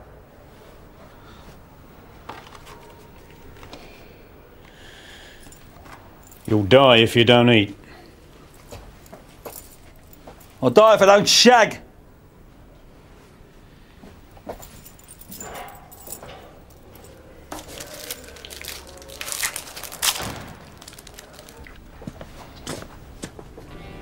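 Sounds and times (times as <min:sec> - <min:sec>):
handling rustles and clicks: 0:02.1 - 0:04.7, 0:05.4 - 0:06.6, 0:08.5 - 0:10.6, 0:14.3 - 0:23.4.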